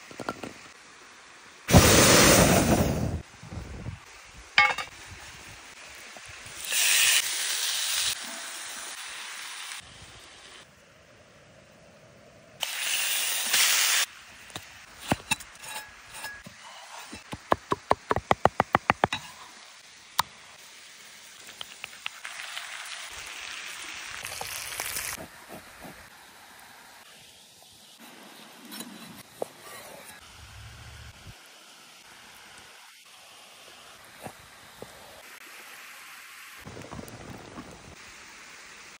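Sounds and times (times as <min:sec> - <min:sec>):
grill pan sizzling: 0:04.6 - 0:10.6, 0:12.6 - 0:16.4, 0:17.1 - 0:28.5.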